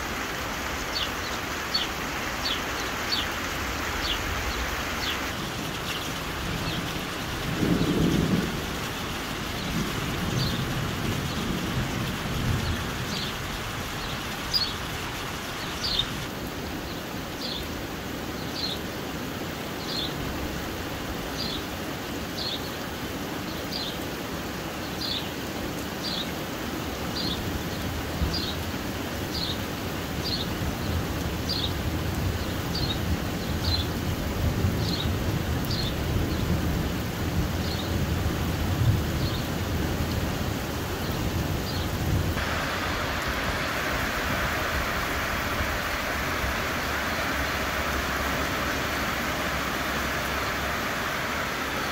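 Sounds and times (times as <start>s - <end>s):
heavy rain falling: 0.0s - 51.9s
thunder rumbling: 6.2s - 13.9s, 41.3s - 51.9s.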